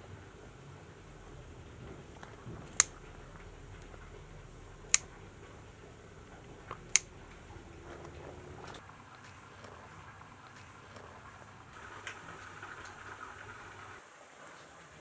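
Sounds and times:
scissors snipping stems: 0:02.2 - 0:03.0, 0:04.8 - 0:05.2, 0:06.7 - 0:07.2.

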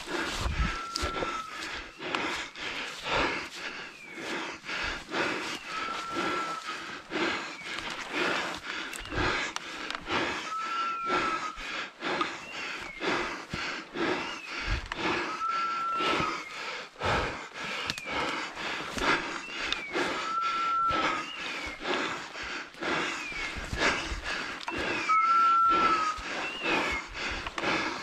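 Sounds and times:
footsteps through dry brush: 0:00.0 - 0:28.0
heavy breathing: 0:00.0 - 0:28.0
electronic collar beep: 0:24.7 - 0:26.8.

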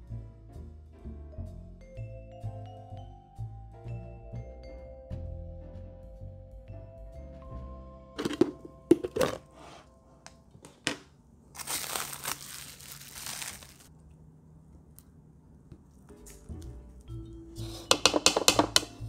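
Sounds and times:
plastic wrap crinkling: 0:11.5 - 0:13.9.

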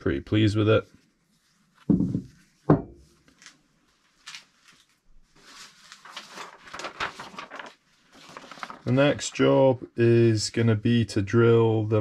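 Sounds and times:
faint rustling and handling: 0:00.1 - 0:09.7
steel block knocking on wooden bench: 0:01.9 - 0:03.0.

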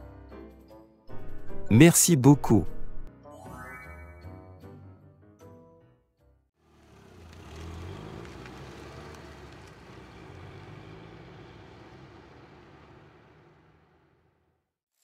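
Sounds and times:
car engine driving away: 0:06.6 - 0:14.7.

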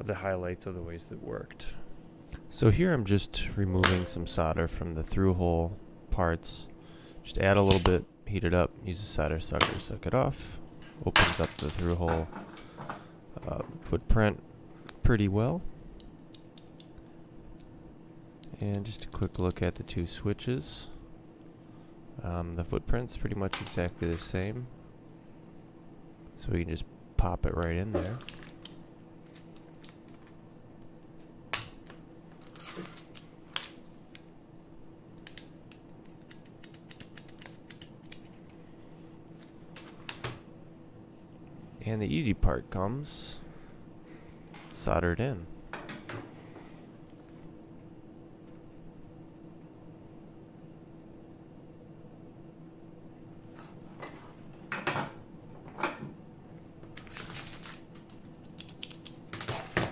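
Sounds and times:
faint steady hum: 0:00.0 - 0:59.9
keyboard clicks: 0:35.3 - 0:38.4.

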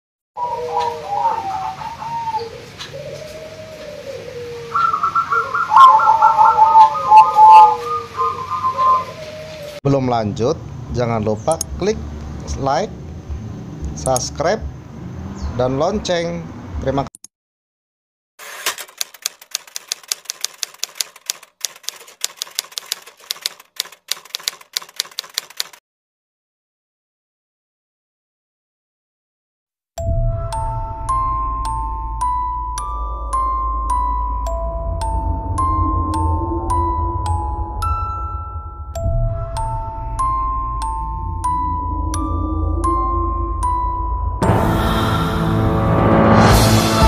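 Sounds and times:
doves cooing: 0:00.4 - 0:09.8
typewriter keys clacking: 0:18.4 - 0:25.8.

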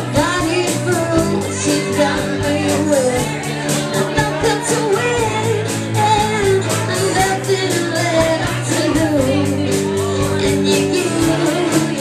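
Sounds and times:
rock band playing: 0:00.0 - 0:12.0
woman singing: 0:00.0 - 0:12.0.

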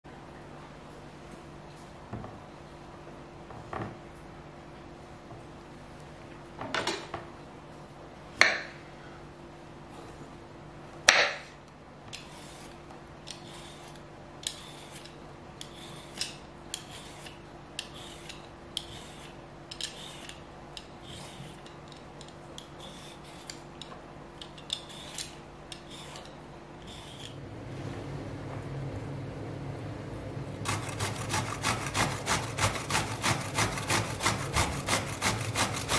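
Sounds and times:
vegetable peeler scraping zucchini: 0:12.2 - 0:23.7, 0:24.6 - 0:27.4, 0:30.7 - 0:35.9.

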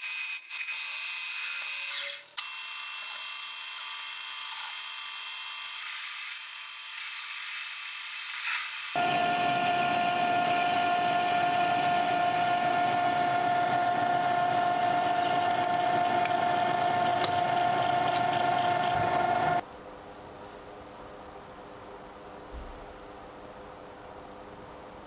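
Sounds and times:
metal lathe whining: 0:07.2 - 0:19.6.

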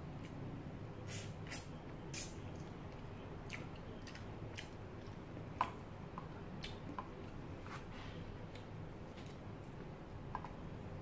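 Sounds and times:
low steady hum: 0:00.0 - 0:11.0
chewing and lip smacking: 0:01.5 - 0:05.2.

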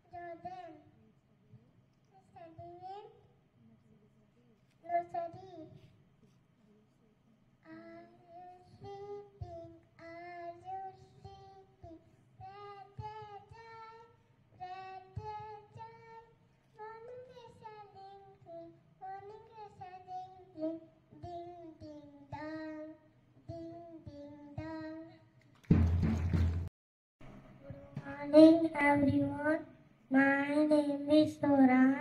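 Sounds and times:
small child singing: 0:00.0 - 0:00.9, 0:02.1 - 0:03.2, 0:04.8 - 0:05.9, 0:07.6 - 0:25.4, 0:27.7 - 0:32.0.

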